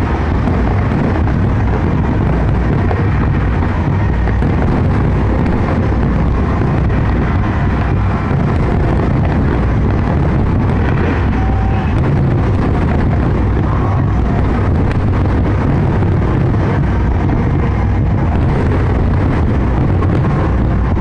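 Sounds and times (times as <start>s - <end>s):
fireworks bursting: 0.0s - 21.0s
wind buffeting microphone: 0.0s - 21.0s.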